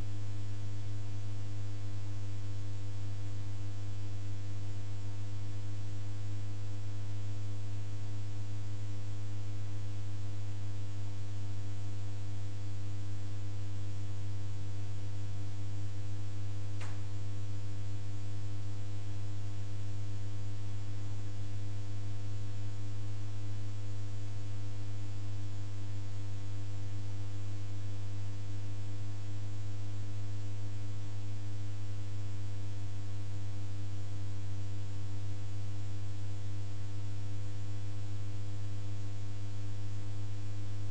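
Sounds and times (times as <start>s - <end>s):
electrical hum with hiss: 0.0s - 40.9s
faint click: 16.8s - 17.0s.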